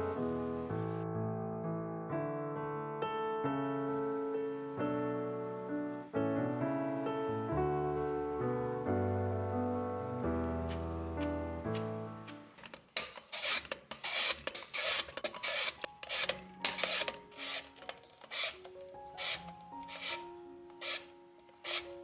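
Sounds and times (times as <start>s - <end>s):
vegetables shredded with blade: 11.2s - 22.0s.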